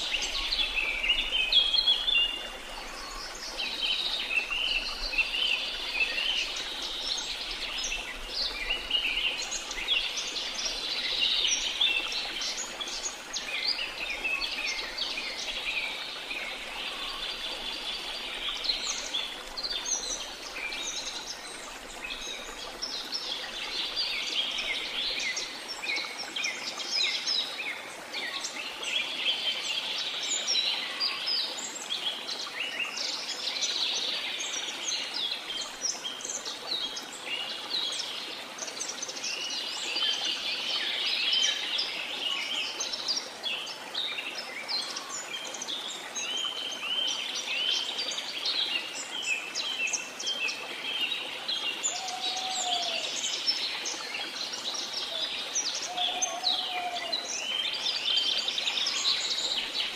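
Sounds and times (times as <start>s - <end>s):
songbirds chirping and trilling: 37.8s - 59.9s.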